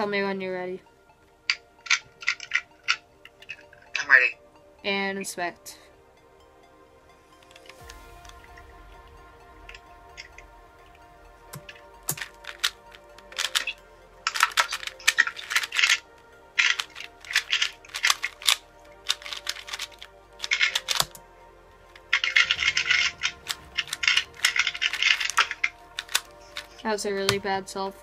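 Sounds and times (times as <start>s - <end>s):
plastic puzzle cube clacking: 11.5s - 21.2s, 22.1s - 27.4s.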